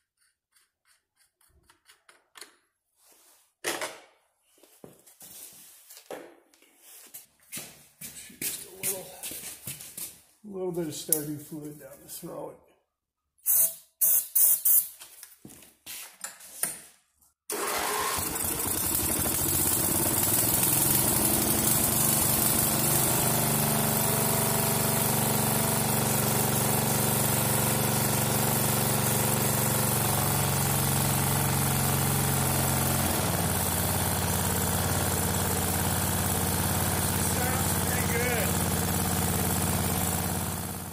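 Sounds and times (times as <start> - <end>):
lawn tractor engine running: 17.5 - 40.9.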